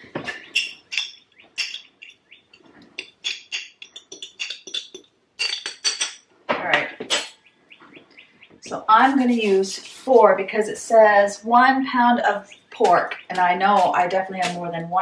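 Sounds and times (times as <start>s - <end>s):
metal spoon clinking in glass jar: 0.6s - 2.2s, 3.0s - 6.2s.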